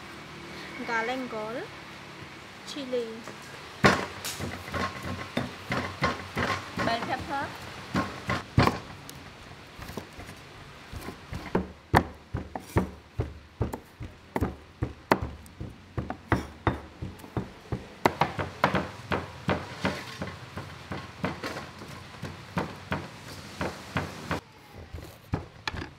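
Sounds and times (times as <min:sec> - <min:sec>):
pestle pounding in stone mortar: 0:03.8 - 0:08.9, 0:10.9 - 0:24.4, 0:25.3 - 0:25.9
knife chopping on wooden board: 0:10.9 - 0:24.4.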